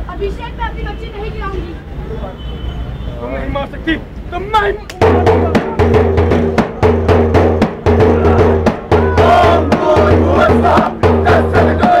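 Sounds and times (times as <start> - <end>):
large drum beaten fast: 5.0 - 12.0
group of voices chanting: 8.0 - 12.0.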